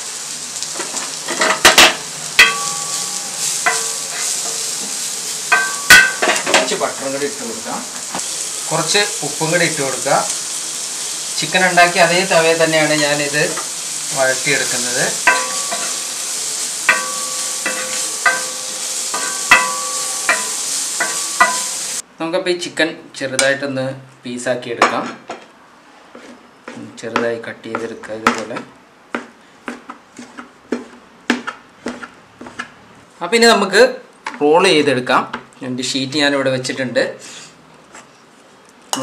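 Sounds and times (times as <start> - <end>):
vegetables sizzling on a pan: 0.0 - 22.1, 38.4 - 39.0
spatula clanking against pan: 1.3 - 6.8, 15.2 - 16.1, 16.8 - 21.9.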